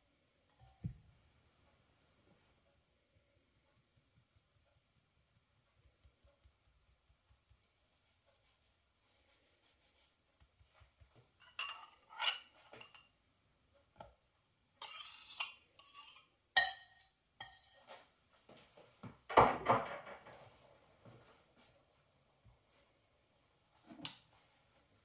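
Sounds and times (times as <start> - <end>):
flour sifting through sieve: 3.8 - 11.4
metal scraping ceramic bowl: 11.4 - 13.1, 14.8 - 17.9.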